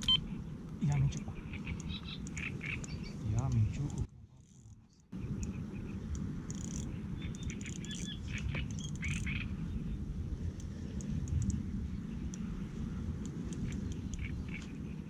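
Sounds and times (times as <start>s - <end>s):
birds chirping: 0.0s - 10.1s, 10.8s - 15.0s
wind buffeting microphone: 5.2s - 15.0s.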